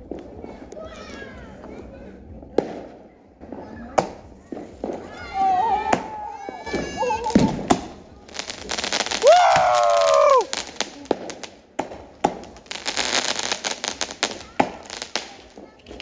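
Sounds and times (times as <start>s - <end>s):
fireworks crackling and banging: 0.0s - 16.0s.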